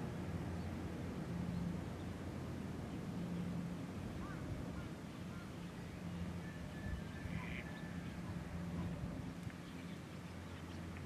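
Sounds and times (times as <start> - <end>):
steady low hum: 0.0 - 11.0
ducks quacking faintly: 4.2 - 5.8, 7.0 - 9.1.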